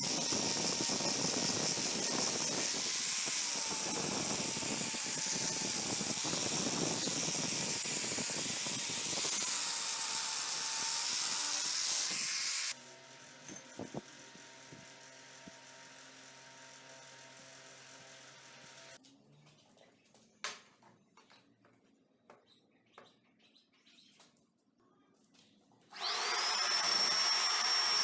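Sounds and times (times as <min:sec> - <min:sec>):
angle grinder grinding metal: 0:00.0 - 0:19.0, 0:25.9 - 0:28.0.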